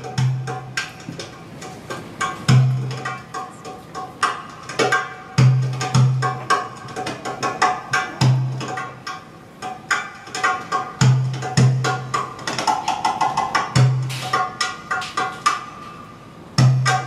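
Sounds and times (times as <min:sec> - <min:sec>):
hand drum high strokes: 0:09.9 - 0:15.9.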